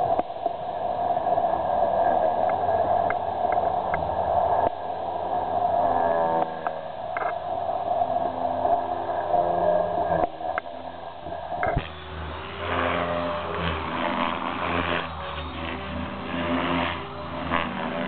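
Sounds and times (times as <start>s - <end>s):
model helicopter rotor whine: 8.4s - 18.0s.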